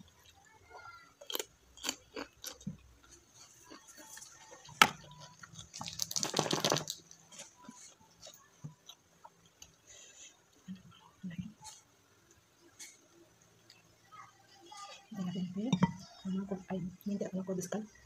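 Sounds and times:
cucumber bites and chewing: 1.2s - 9.0s.

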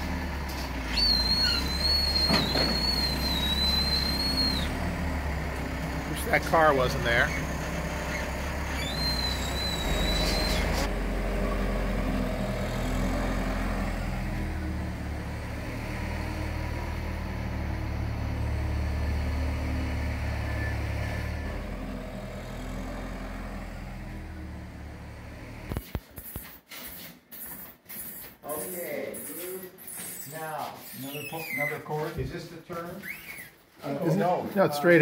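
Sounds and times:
engine running: 0.0s - 26.0s
high wavering squeal: 0.9s - 4.7s, 8.1s - 10.9s.

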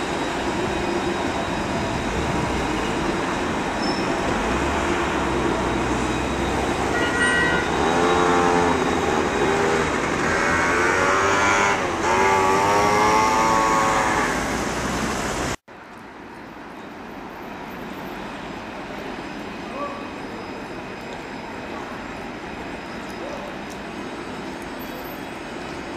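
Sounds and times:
vehicle whines: 0.0s - 15.6s
road traffic passing: 0.0s - 25.9s
trams passing: 0.0s - 25.9s.

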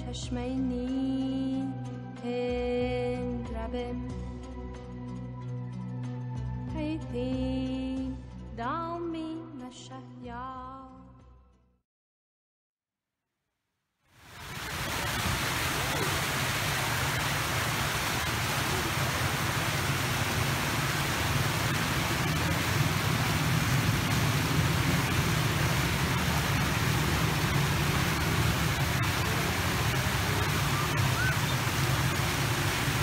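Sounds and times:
fountain jets splashing into pool: 14.2s - 33.0s.

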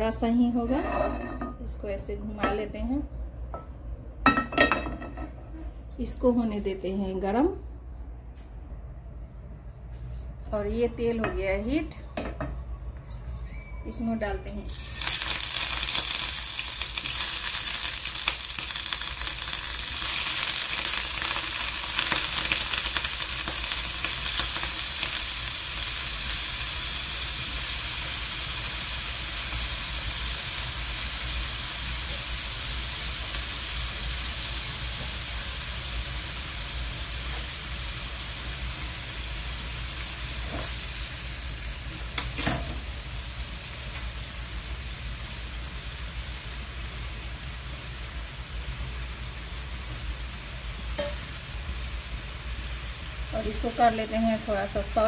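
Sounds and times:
paneer sizzling in hot oil: 14.7s - 55.0s.

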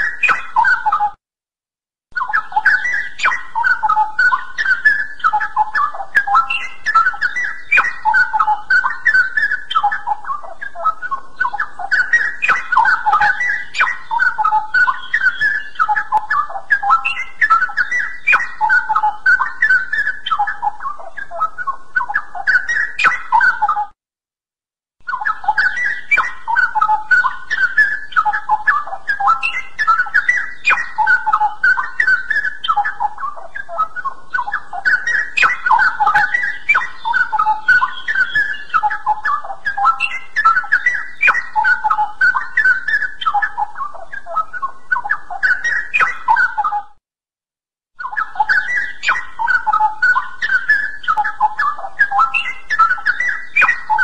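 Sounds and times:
bird singing fluty whistles: 0.0s - 1.2s, 2.2s - 23.9s, 25.0s - 47.0s, 48.0s - 54.0s.

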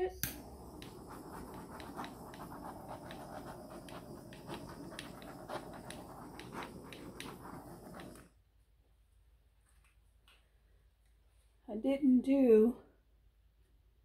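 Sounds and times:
torch flame hissing and crackling: 0.0s - 8.3s.

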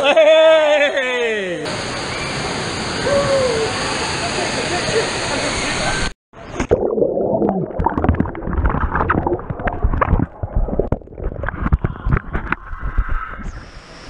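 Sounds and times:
underwater gurgling bubbles: 6.6s - 13.4s.

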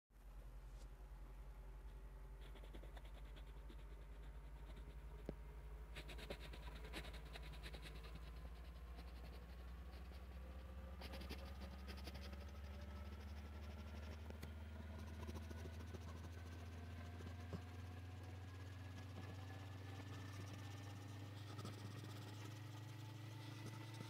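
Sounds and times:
steady low hum: 0.2s - 24.0s
pencil scratching on paper: 2.4s - 5.3s, 6.0s - 17.6s.

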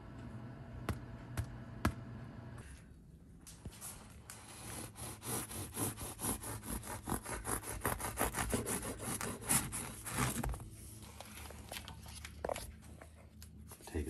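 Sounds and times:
bread knife sawing through loaf: 4.5s - 10.4s.

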